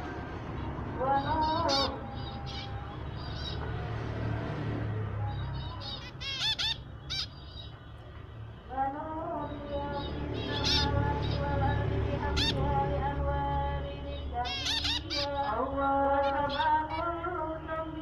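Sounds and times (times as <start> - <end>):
finches calling and singing: 0.5 - 4.2, 5.0 - 18.0.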